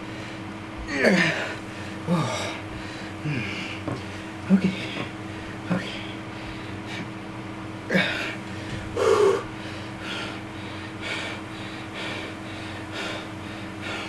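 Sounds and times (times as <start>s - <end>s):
man breathing hard: 0.0s - 7.1s, 7.9s - 14.0s
man grunting: 0.9s - 2.6s, 3.2s - 3.8s, 4.4s - 6.2s, 7.9s - 8.4s.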